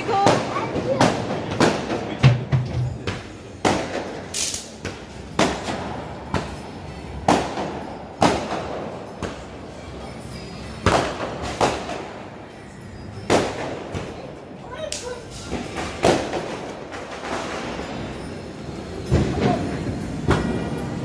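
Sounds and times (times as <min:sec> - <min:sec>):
firecrackers bursting: 0:00.0 - 0:02.2, 0:03.6 - 0:06.6, 0:07.2 - 0:09.5, 0:10.8 - 0:12.2, 0:13.2 - 0:14.0, 0:14.9 - 0:18.3.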